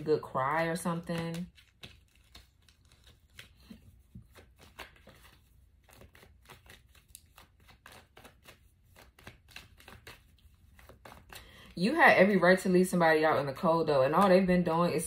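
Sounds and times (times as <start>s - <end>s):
cards clicking and rustling: 0.8s - 11.7s.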